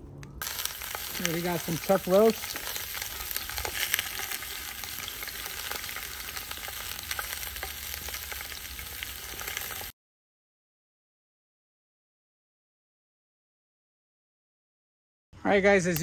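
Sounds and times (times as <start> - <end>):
meat sizzling with pops and crackles: 0.4 - 10.0.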